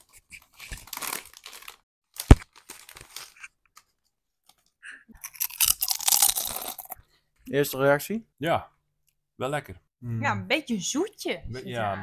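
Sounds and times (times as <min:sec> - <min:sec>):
chip bag crinkling: 0:00.5 - 0:03.5, 0:05.3 - 0:07.0.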